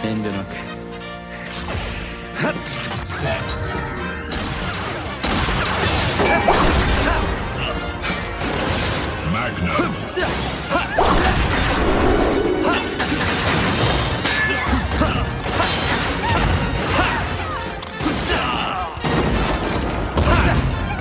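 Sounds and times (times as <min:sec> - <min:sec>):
background music: 0:00.0 - 0:21.0
hit and crash sound effects: 0:11.0 - 0:14.3.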